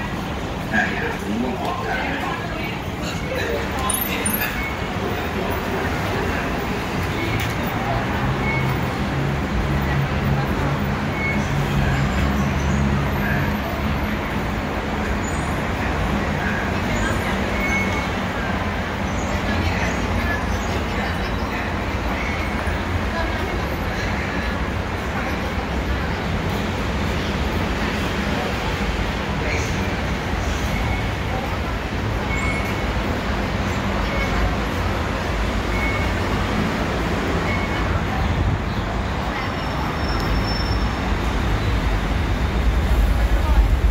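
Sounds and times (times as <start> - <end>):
crowd noise: 0.0 - 43.9
road traffic engine hum: 0.0 - 43.9
faint short high beeps: 35.7 - 36.2.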